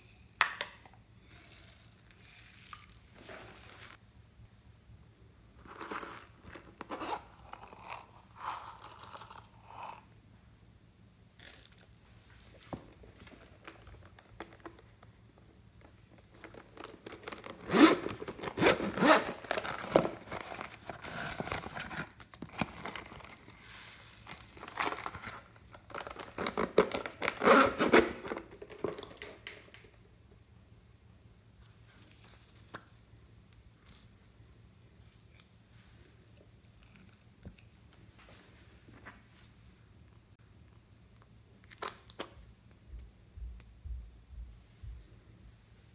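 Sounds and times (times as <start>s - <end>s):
zip being drawn open: 17.7s - 19.5s, 27.4s - 28.2s
containers clicking and rustling: 24.3s - 30.0s.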